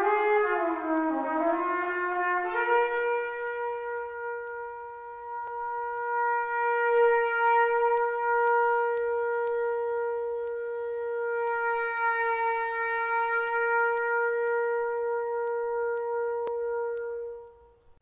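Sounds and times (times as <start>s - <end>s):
trumpet long steady note: 0.0s - 17.9s.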